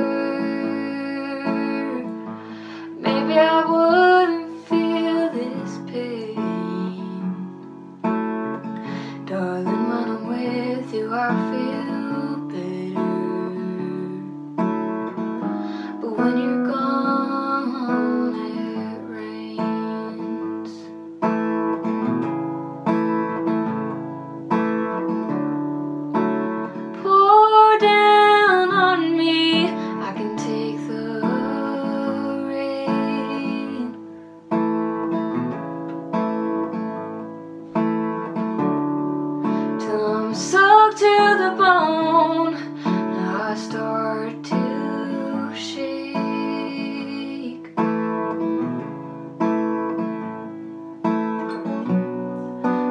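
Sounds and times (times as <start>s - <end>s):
woman singing: 0.0s - 7.8s, 8.7s - 14.5s, 15.4s - 21.0s, 26.7s - 34.1s, 39.4s - 48.8s
acoustic guitar strumming: 0.0s - 52.9s.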